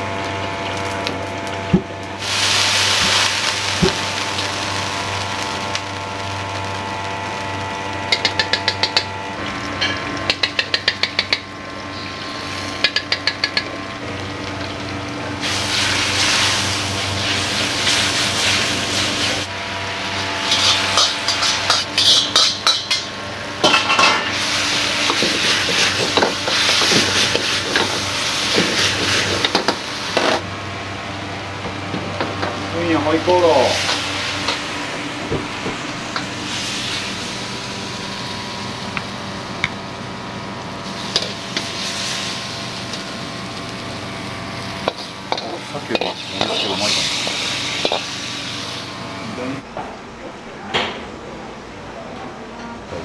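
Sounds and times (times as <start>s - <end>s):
food sizzling in a hot wok: 0.0s - 49.2s
low kitchen drone: 0.0s - 53.0s
ladle clicking against wok: 12.8s - 13.7s.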